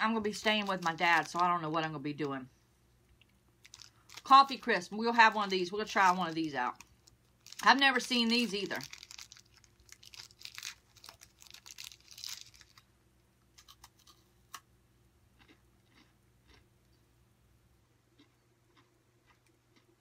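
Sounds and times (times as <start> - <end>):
wrapper crinkling and tearing: 0.2 - 1.6, 3.6 - 12.9.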